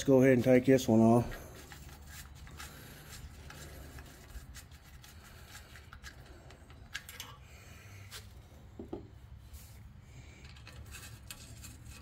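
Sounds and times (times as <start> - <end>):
metal clicks and scraping: 5.4 - 7.5, 10.4 - 12.0.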